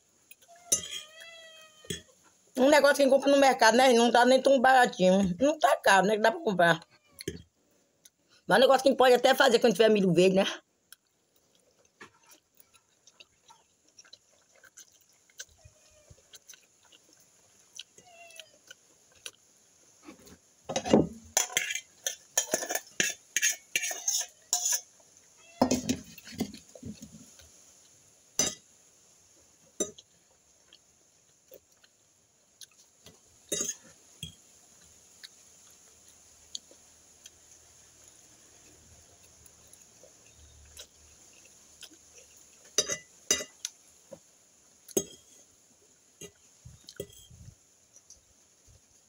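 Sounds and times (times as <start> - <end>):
metal fork clinking on glass plate: 0.7 - 1.1, 42.8 - 43.5.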